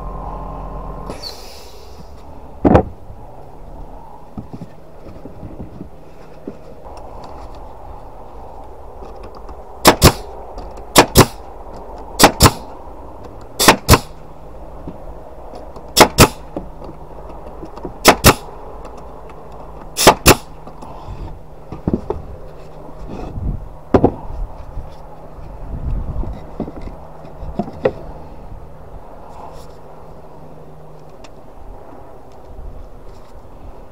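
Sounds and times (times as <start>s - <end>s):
low steady hum: 0.0s - 33.9s
nail gun firing: 9.8s - 10.3s, 10.9s - 11.4s, 12.2s - 12.7s, 13.6s - 14.2s, 16.0s - 16.5s, 18.0s - 18.5s, 20.0s - 20.5s.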